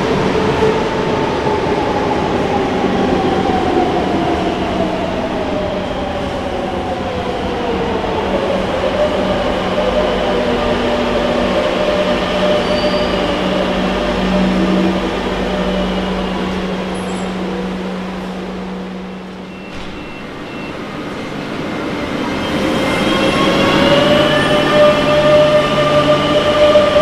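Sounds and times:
metro train motor hum: 0:00.0 - 0:19.6.

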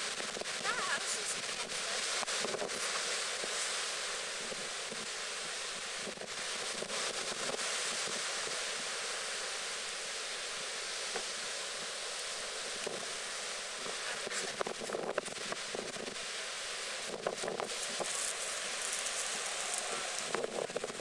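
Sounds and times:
waves breaking and surf rushing: 0:00.0 - 0:21.0
wind on microphone: 0:16.9 - 0:21.0.

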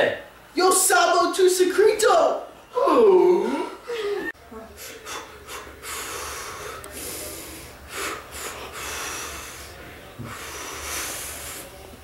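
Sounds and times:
person breathing heavily: 0:03.4 - 0:11.8.

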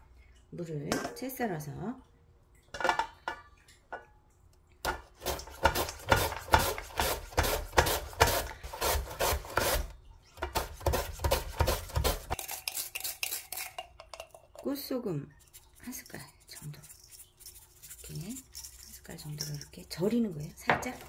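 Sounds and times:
radish rasping on mandoline slicer: 0:05.2 - 0:09.9.

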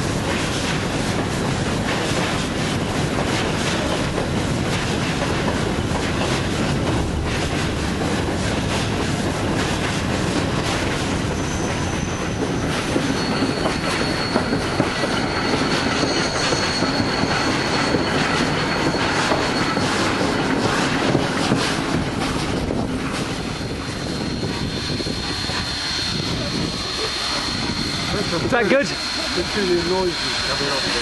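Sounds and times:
train wheels rumbling on track: 0:00.0 - 0:31.0
high wheel squeal: 0:08.5 - 0:31.0.

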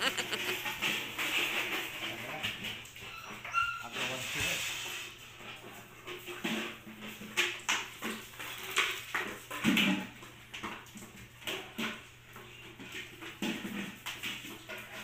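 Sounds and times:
puppy noises: 0:00.0 - 0:01.4, 0:02.1 - 0:04.3.

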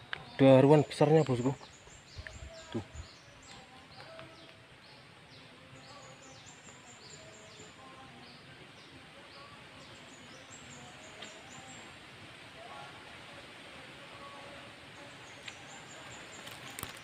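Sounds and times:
steady hiss: 0:06.2 - 0:17.0.

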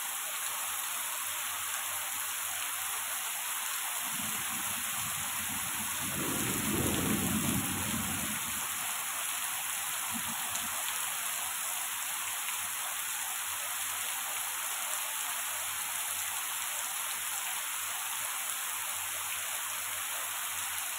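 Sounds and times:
heavy rain and hail: 0:04.0 - 0:12.7.

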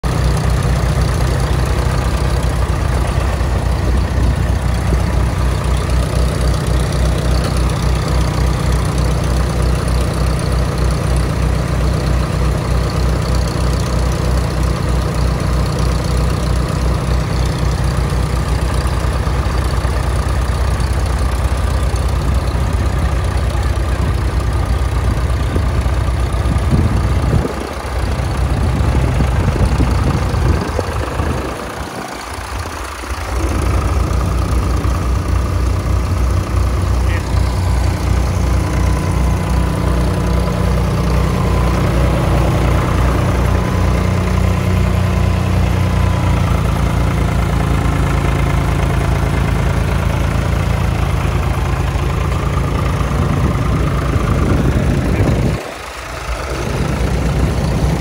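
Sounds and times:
diesel tractor engine idling: 0:00.0 - 0:58.0.

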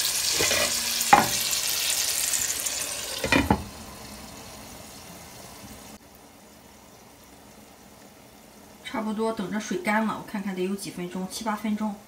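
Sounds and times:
oil sizzling in frying pan: 0:00.0 - 0:12.0
glass lid clinking: 0:00.3 - 0:01.5, 0:03.2 - 0:03.6.

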